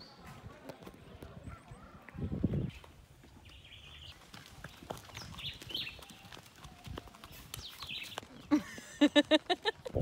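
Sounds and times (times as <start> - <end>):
hooves clip-clopping on gravel: 2.0 - 10.0.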